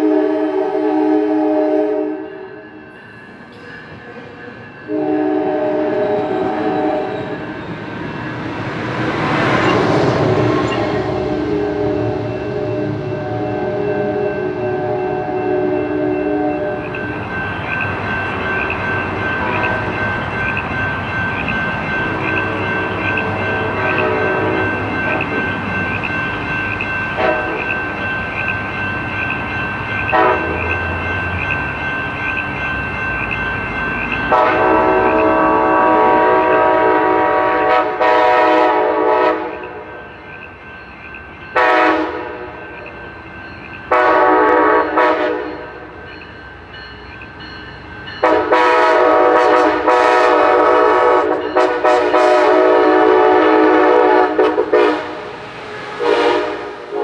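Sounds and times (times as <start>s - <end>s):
train air horn blasts: 0.0s - 2.4s, 4.9s - 7.4s, 10.9s - 16.9s, 23.8s - 24.7s, 27.2s - 27.7s, 30.1s - 30.7s, 34.3s - 39.8s, 41.6s - 42.4s, 43.9s - 45.6s, 48.2s - 55.3s, 56.0s - 57.0s
train rumbling on rails: 0.0s - 57.0s.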